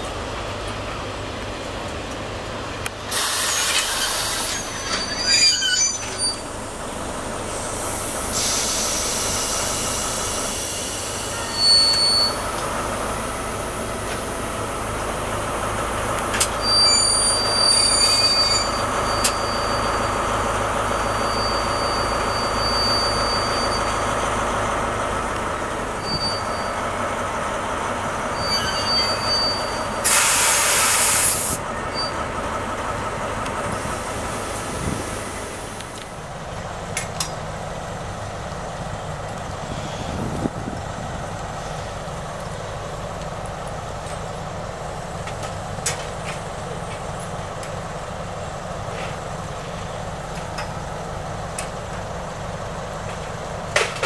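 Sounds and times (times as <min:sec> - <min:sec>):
diesel locomotive engine running: 0:00.0 - 0:54.0
burst of hiss: 0:03.1 - 0:04.7, 0:07.6 - 0:11.4, 0:30.0 - 0:31.6
high wheel squeals: 0:03.2 - 0:06.6, 0:07.5 - 0:12.6, 0:16.4 - 0:24.2, 0:26.0 - 0:27.0, 0:28.3 - 0:32.3
rumble of wagons: 0:31.6 - 0:54.0.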